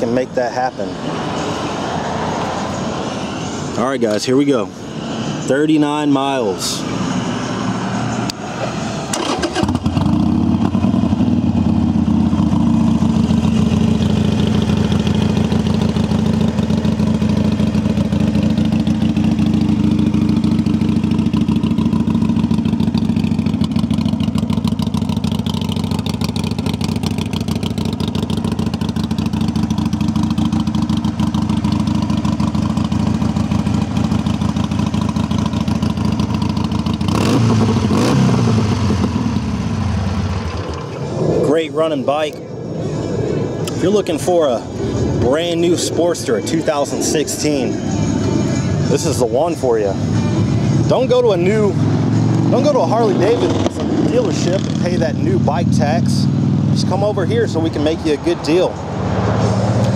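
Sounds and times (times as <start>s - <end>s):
motorcycle engine idling and revving: 0.0s - 59.9s.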